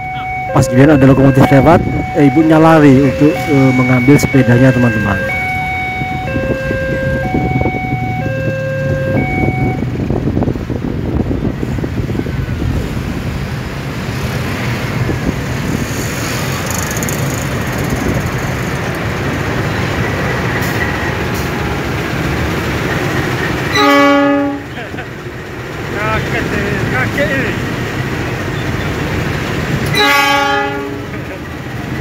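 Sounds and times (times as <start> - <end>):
two-note beeping: 0.0 - 9.8
locomotive engine drone: 0.0 - 32.0
locomotive rolling on rails: 0.0 - 32.0.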